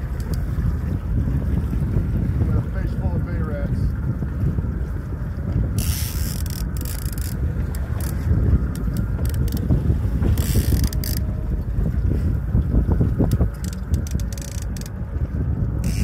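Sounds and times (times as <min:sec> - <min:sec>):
wind rumble on microphone: 0:00.0 - 0:16.0
fishing reel cranking: 0:05.8 - 0:09.6, 0:10.4 - 0:11.2, 0:13.5 - 0:14.9.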